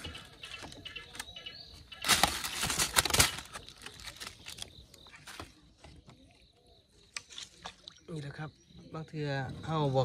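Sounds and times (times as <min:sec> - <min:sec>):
rustling: 0:02.0 - 0:05.7.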